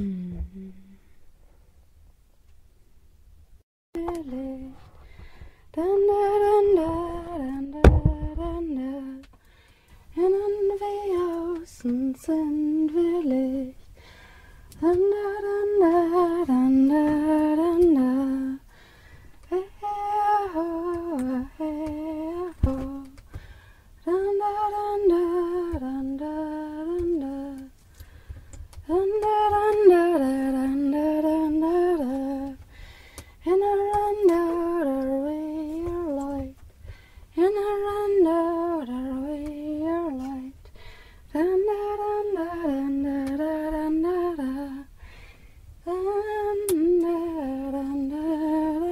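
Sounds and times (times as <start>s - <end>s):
person humming a melody: 0.0s - 1.0s
low thump: 7.8s - 8.6s.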